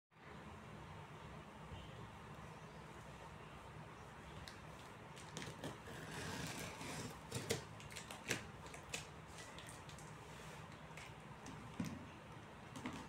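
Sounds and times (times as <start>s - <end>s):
cardboard rustling and scraping: 5.2s - 7.7s.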